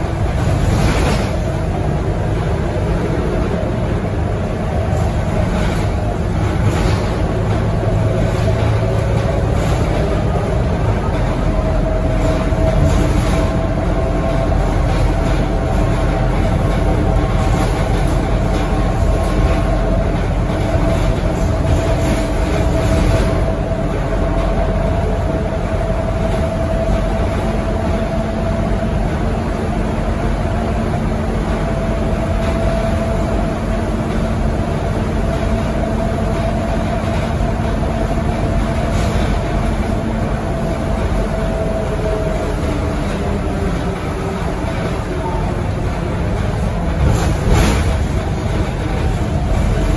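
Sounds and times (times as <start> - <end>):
bus engine and road rumble: 0.0 - 49.9.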